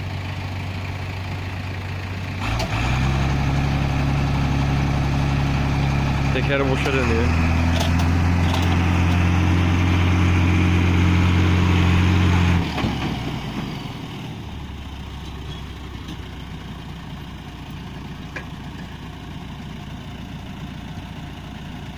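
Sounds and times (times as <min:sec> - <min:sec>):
heavy diesel engine revving: 0:00.0 - 0:21.9.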